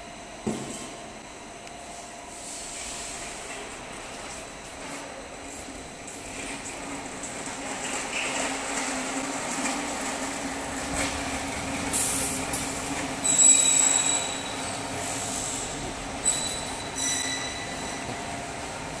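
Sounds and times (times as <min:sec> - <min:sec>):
workshop machine hum: 0:00.0 - 0:19.0
high-pitched squeaks: 0:13.2 - 0:14.6, 0:16.2 - 0:18.1.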